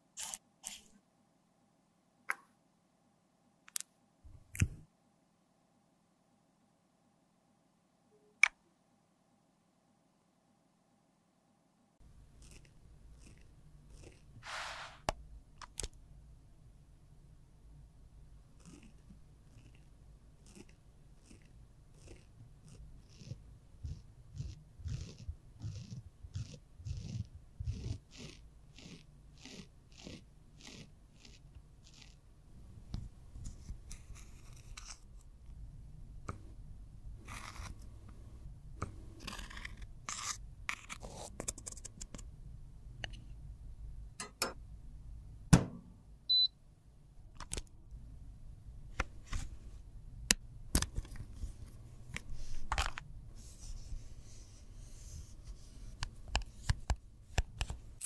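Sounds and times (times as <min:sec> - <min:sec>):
metal tool scraping powder: 0:14.4 - 0:15.0, 0:39.2 - 0:41.3.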